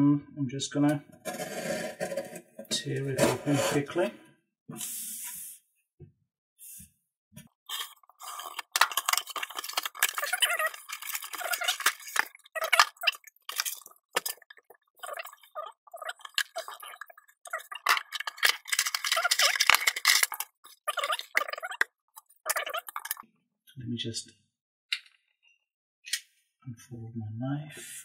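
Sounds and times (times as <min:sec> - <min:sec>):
packing tape and cardboard ripping: 0:01.2 - 0:02.4, 0:07.7 - 0:14.5, 0:17.6 - 0:21.6
packaging crackling: 0:07.7 - 0:15.5, 0:16.1 - 0:21.8.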